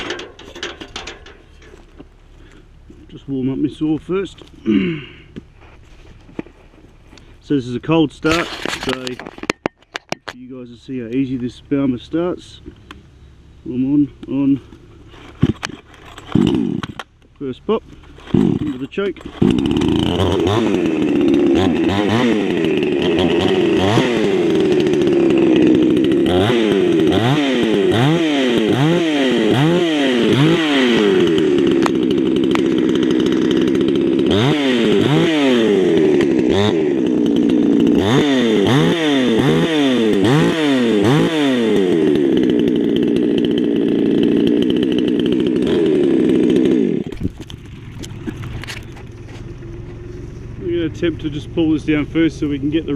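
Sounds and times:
chainsaw idling with throttle blips: 13.8s - 52.9s.

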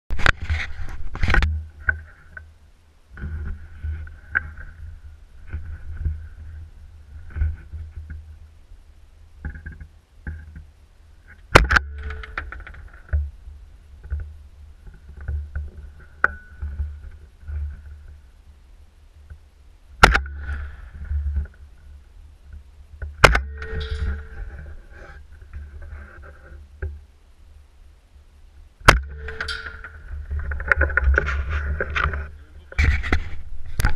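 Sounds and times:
rifle shot: 20.0s - 20.9s.

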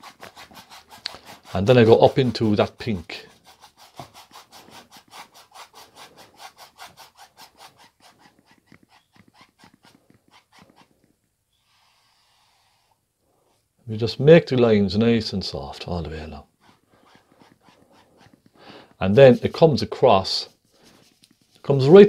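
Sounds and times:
paintbrush scrubbing on canvas: 0.0s - 11.1s, 15.8s - 21.9s.

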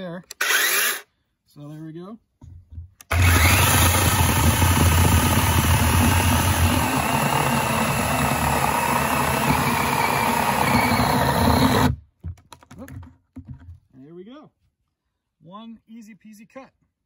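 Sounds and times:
cordless chainsaw cutting timber: 0.4s - 1.0s, 3.1s - 12.0s.

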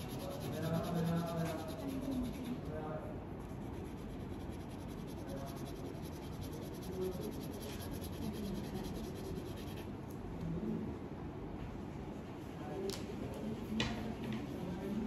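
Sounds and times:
crayon rubbing on paper: 0.0s - 2.8s, 3.4s - 9.8s.

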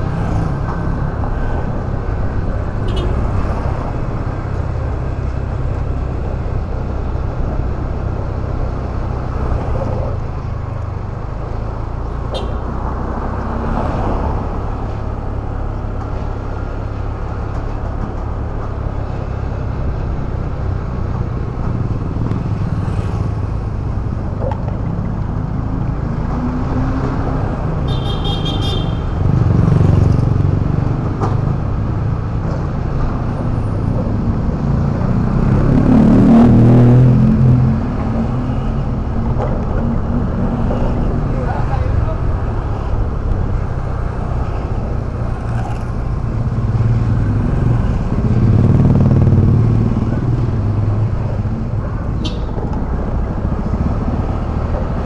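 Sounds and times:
city traffic: 0.0s - 55.0s
vehicle horn toot: 27.9s - 29.1s.

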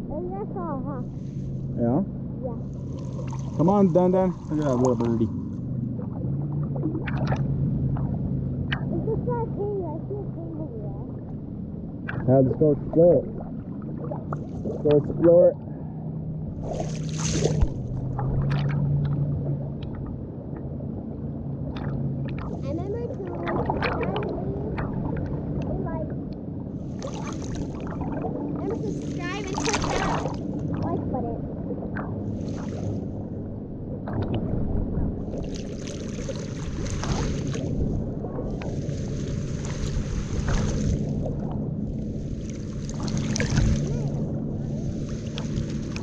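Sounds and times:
steady low hum: 0.0s - 46.0s
water sloshing against camera: 0.0s - 46.0s
small splashes: 2.5s - 11.3s, 12.1s - 15.7s, 16.5s - 20.2s, 21.6s - 25.9s, 26.8s - 31.0s, 31.9s - 33.2s, 35.2s - 46.0s.

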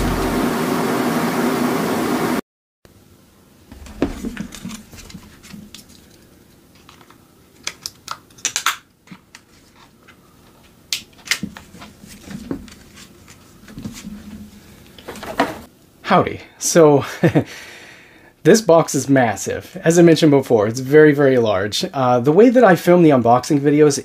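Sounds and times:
soft thuds: 3.7s - 5.7s.

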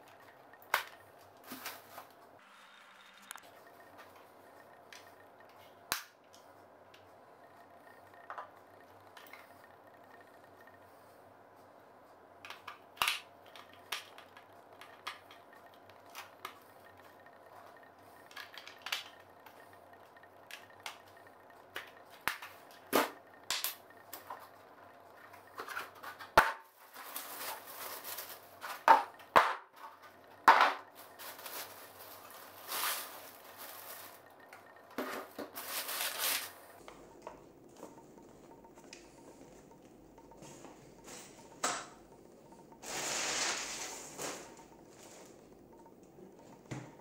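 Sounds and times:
plastic parts clicking and knocking: 12.4s - 26.7s
plastic packaging crinkling: 26.8s - 28.5s, 31.0s - 34.3s, 35.5s - 36.6s.

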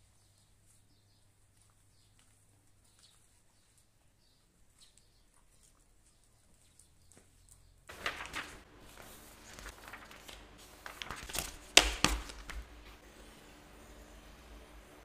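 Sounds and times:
paper rustling and crinkling: 7.9s - 13.0s.

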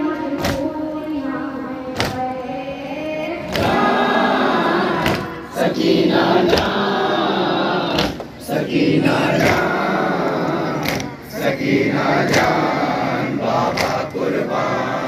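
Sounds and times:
boy chanting: 0.0s - 15.0s
men chanting in chorus: 3.4s - 15.0s
chest-beating slaps: 3.5s - 3.8s, 5.0s - 5.4s, 6.4s - 6.9s, 7.9s - 8.4s, 9.4s - 9.8s, 10.8s - 11.2s, 12.2s - 12.7s, 13.6s - 14.2s.

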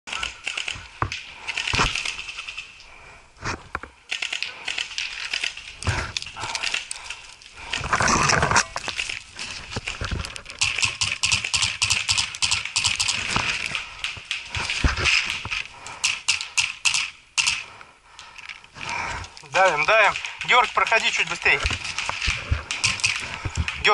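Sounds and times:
twigs and branches rustling: 0.1s - 23.9s.

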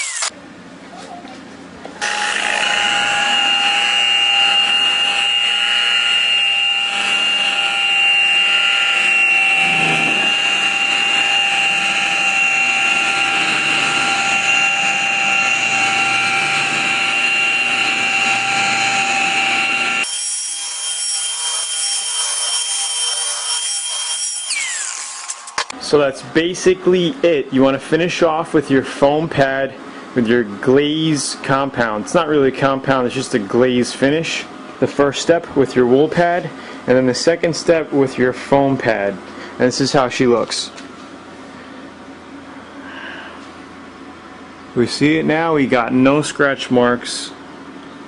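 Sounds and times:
polishing buffer whine: 2.0s - 20.1s.

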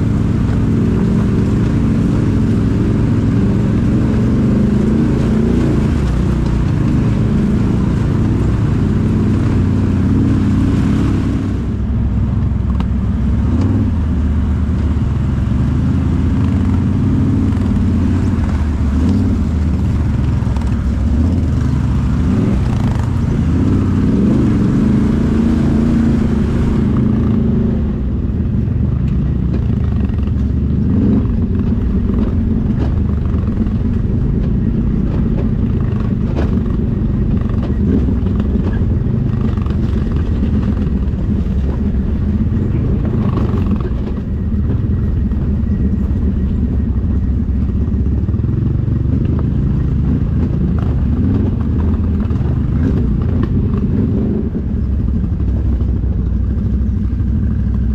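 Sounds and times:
atv engine running: 0.0s - 57.9s
short knocks and clatter: 31.2s - 46.6s.

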